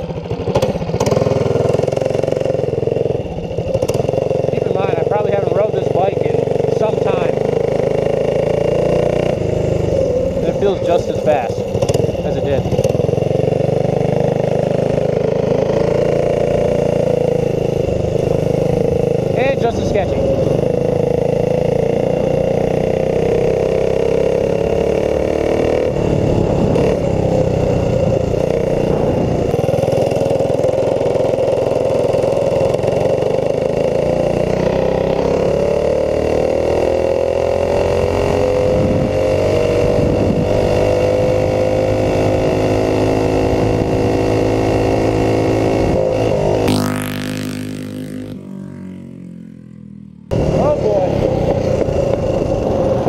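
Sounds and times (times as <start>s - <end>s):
mini bike engine running: 0.0s - 53.0s.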